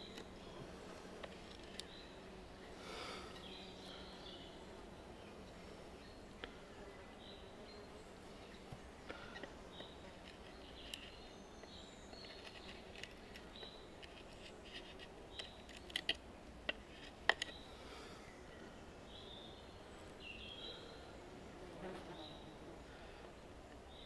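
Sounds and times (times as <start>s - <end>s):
small birds chirping: 0.0s - 24.0s.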